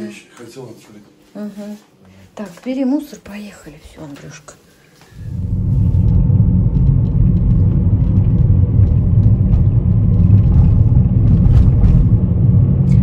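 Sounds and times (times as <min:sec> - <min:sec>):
car engine and road noise: 0:05.2 - 0:13.0.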